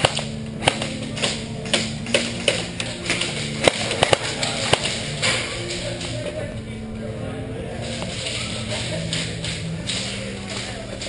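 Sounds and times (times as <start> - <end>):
airsoft gun shots: 0.0 - 5.3
steady low hum: 0.0 - 11.0.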